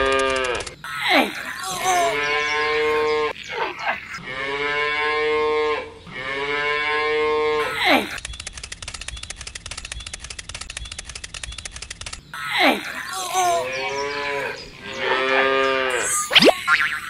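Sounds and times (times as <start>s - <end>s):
cattle mooing: 4.2s - 7.8s, 12.4s - 16.2s.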